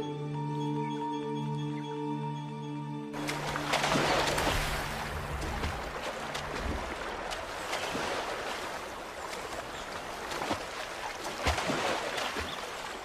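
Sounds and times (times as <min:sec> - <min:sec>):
river water rushing over rocks: 0:03.2 - 0:13.0
water splashes: 0:03.2 - 0:13.0.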